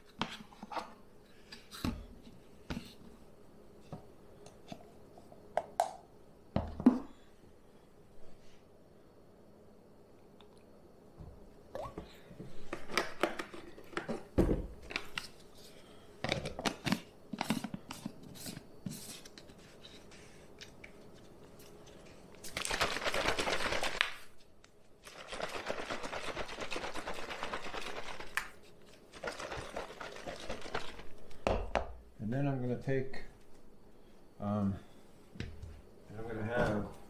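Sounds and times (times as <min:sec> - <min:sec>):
shaker cup shaken hard: 0:22.4 - 0:24.2, 0:25.0 - 0:31.3.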